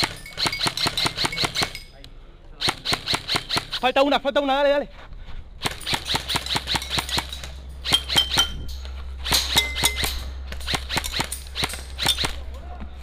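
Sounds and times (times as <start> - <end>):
airsoft rifle shots: 0.0 - 1.8, 2.6 - 4.1, 5.6 - 8.6, 9.2 - 12.5.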